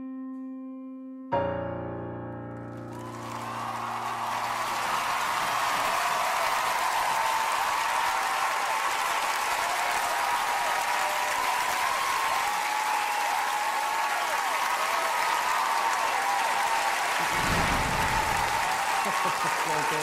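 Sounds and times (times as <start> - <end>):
piano notes: 0.0 - 5.3
audience applauding: 2.7 - 20.0
audience cheering: 2.7 - 20.0.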